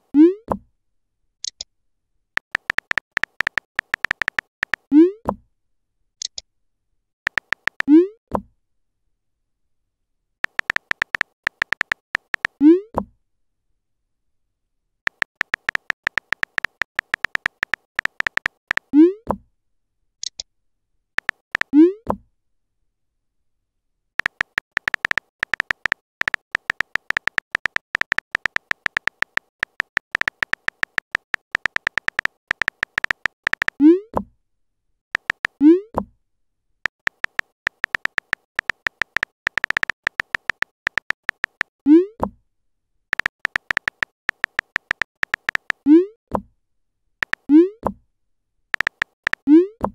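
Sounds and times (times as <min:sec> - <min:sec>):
phone keyboard clicking: 0:02.4 - 0:04.8, 0:07.3 - 0:07.9, 0:10.4 - 0:12.6, 0:15.1 - 0:18.9, 0:21.2 - 0:21.7, 0:24.2 - 0:33.8, 0:35.2 - 0:35.6, 0:36.9 - 0:41.7, 0:43.1 - 0:45.8, 0:47.2 - 0:47.5, 0:48.8 - 0:49.5.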